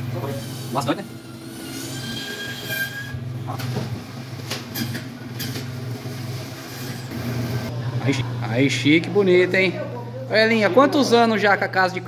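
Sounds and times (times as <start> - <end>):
high saw blade whine: 0.0 - 3.2
band saw motor hum: 0.0 - 3.4.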